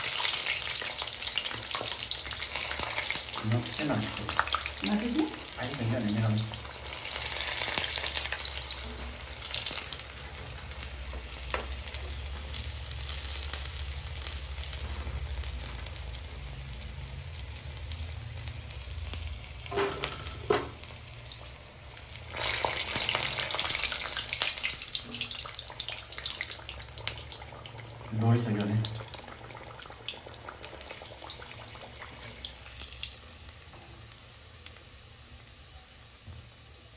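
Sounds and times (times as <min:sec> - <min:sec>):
hot oil sizzling: 0:00.0 - 0:36.9.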